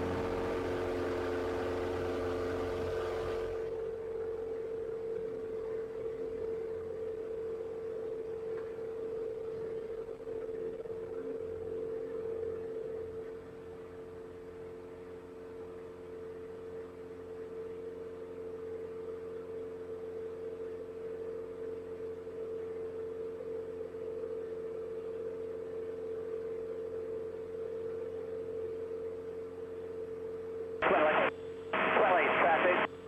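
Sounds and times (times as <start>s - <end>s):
propeller airplane engine: 0.0s - 7.3s, 30.8s - 33.0s.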